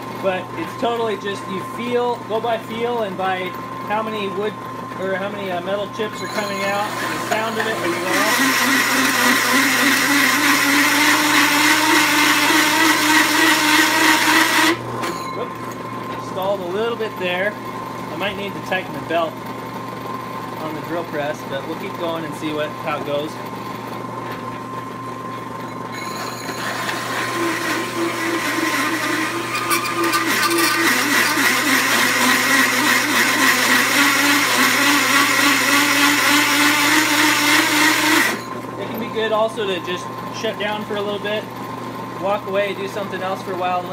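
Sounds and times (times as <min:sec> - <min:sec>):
high ringing tone: 0:06.0 - 0:07.0, 0:15.0 - 0:15.7, 0:25.6 - 0:27.0, 0:38.3 - 0:38.7
hole saw grinding through steel: 0:06.5 - 0:14.8, 0:26.0 - 0:38.6.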